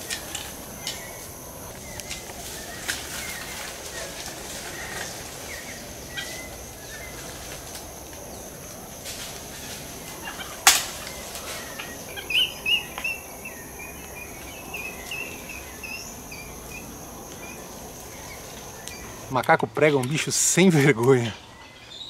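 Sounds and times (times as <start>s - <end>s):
high insect hum: 0.0s - 22.0s
sharp snap: 10.7s - 11.1s.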